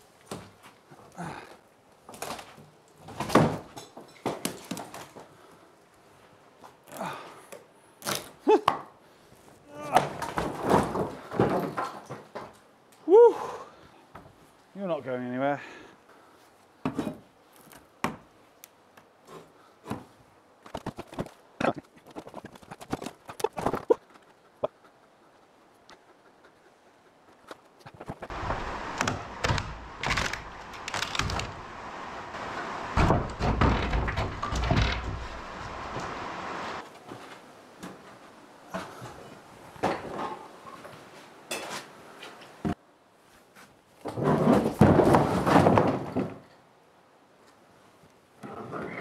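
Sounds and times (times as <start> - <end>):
wooden doors knocking and scraping: 32.4 - 36.2.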